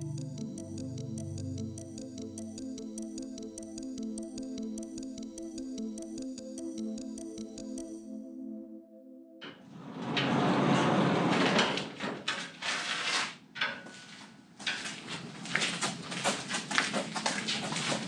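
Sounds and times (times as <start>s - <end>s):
metal door rattling and scraping: 9.4s - 16.2s
footsteps on floor: 12.4s - 18.0s.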